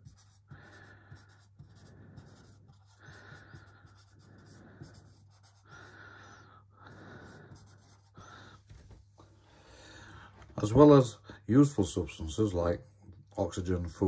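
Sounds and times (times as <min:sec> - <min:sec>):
marker scratching on whiteboard: 0:00.0 - 0:06.0, 0:06.8 - 0:09.0.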